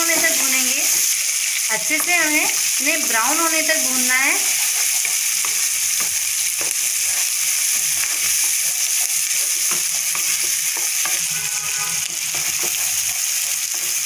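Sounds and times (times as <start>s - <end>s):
onions sizzling in oil: 0.0s - 14.0s
wooden spatula scraping pan: 9.3s - 14.0s.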